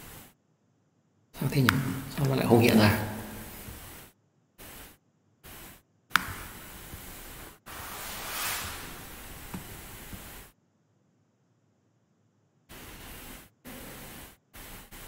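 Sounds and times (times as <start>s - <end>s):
microphone hiss: 0.0s - 0.4s, 1.4s - 10.6s, 12.7s - 15.0s.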